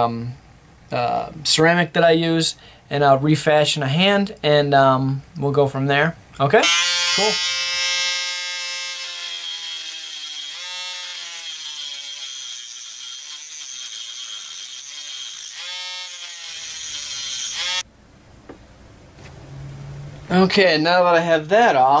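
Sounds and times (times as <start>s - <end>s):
rotary tool whining: 6.7s - 17.9s.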